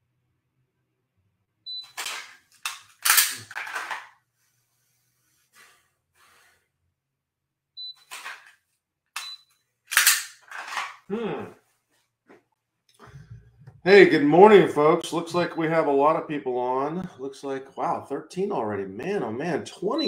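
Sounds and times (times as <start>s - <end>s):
pistol drawn from holster: 1.9s - 4.1s, 8.1s - 8.6s, 9.9s - 11.0s.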